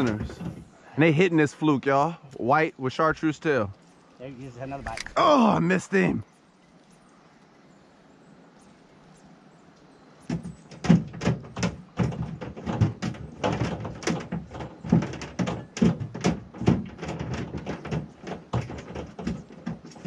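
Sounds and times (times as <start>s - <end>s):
knocks and thumps in a boat: 0.0s - 0.8s, 10.2s - 20.0s
faint steady hiss: 0.0s - 11.0s.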